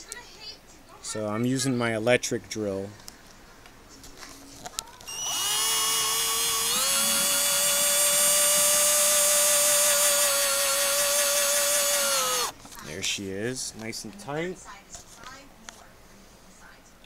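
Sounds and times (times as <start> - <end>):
cordless drill driving screw: 5.1 - 12.5.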